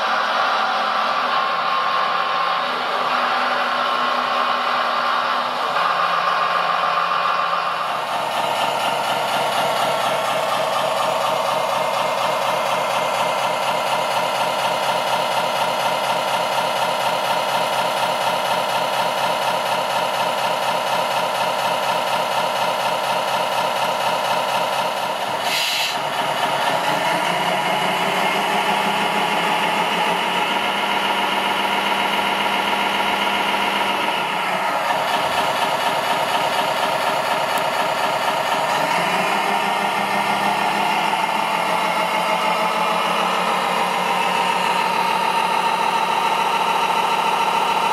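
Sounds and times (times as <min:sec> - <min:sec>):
toy truck engine running: 0:00.0 - 0:47.9
short hiss: 0:25.5 - 0:26.0.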